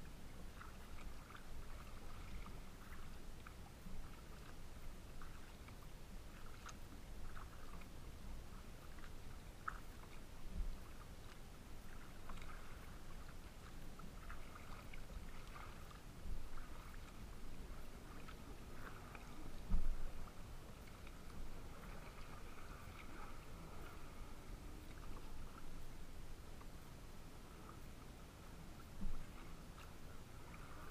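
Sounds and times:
wind rumbling on microphone: 0.0 - 30.9
waves splashing against plastic hull: 8.6 - 25.9.

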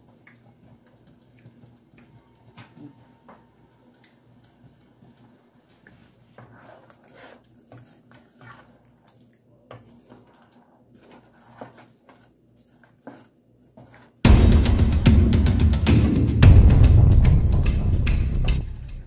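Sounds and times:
spatula stirring thick stew: 4.6 - 14.2.

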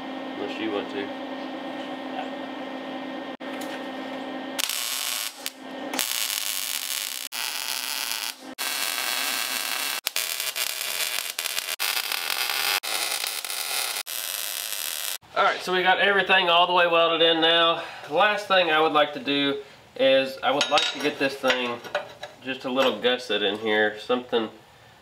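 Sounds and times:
welder arc crackling: 4.6 - 15.2.

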